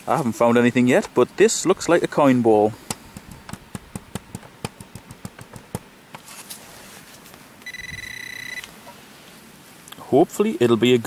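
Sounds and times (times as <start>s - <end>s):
metal detector beep: 7.6s - 8.7s.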